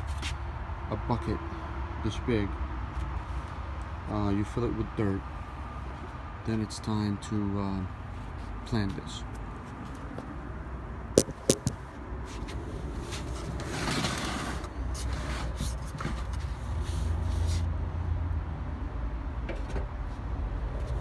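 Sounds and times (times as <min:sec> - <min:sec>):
scraping rustle: 0:11.3 - 0:17.7.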